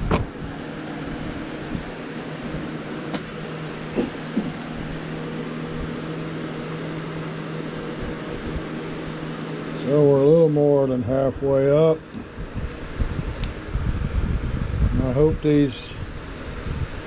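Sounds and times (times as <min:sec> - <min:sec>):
electric fan humming: 0:00.0 - 0:17.0.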